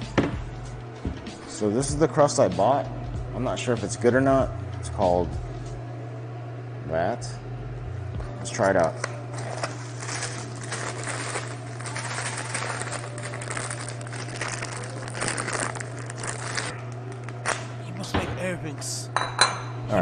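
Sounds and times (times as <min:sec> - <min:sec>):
steady low hum: 0:00.0 - 0:20.0
plastic bag crinkling: 0:09.3 - 0:17.7.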